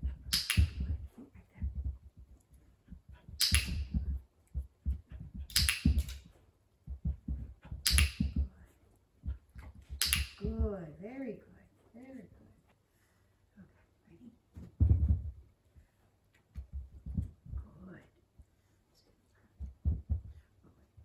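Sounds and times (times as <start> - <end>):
dog paws thudding on carpet: 0.0 - 10.9, 14.5 - 18.7, 19.5 - 21.0
sharp click: 0.3 - 0.9, 3.4 - 4.0, 5.5 - 6.2, 7.8 - 8.4, 9.9 - 10.5.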